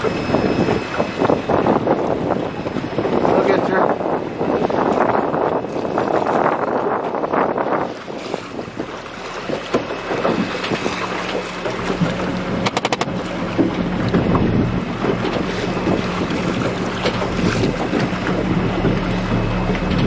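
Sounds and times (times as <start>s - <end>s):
boat motor running: 0.0s - 20.0s
water splashing against hull: 0.0s - 20.0s
wind buffeting microphone: 0.0s - 20.0s
quick clicks: 12.7s - 13.1s.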